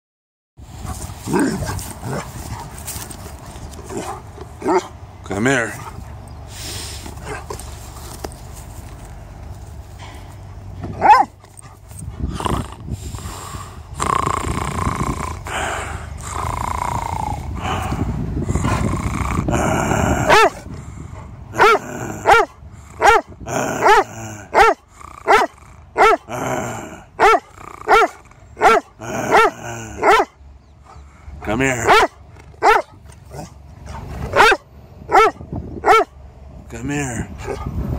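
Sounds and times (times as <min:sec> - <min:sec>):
dog growling: 0:01.2 - 0:02.6, 0:12.2 - 0:13.4, 0:14.0 - 0:20.9, 0:21.5 - 0:30.3
dog barking: 0:11.0 - 0:11.3, 0:20.3 - 0:20.6, 0:21.6 - 0:24.0, 0:24.6 - 0:26.3, 0:27.2 - 0:30.3, 0:31.9 - 0:36.1.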